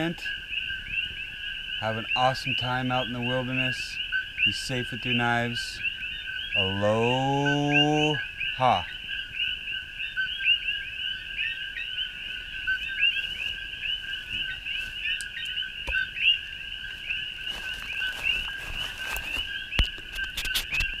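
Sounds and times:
frogs calling in chorus: 0.0 - 21.0
campfire pops: 18.1 - 21.0.

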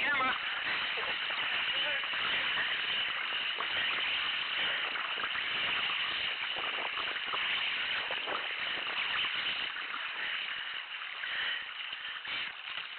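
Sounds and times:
moving water hiss: 0.0 - 12.9
paddle splashing and dripping: 0.0 - 12.9.

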